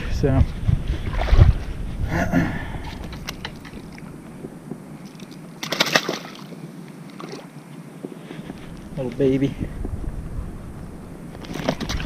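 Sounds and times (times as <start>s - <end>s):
wind rumble on microphone: 0.0s - 12.0s
fish splashing in shallow water: 5.0s - 7.6s, 11.4s - 12.0s.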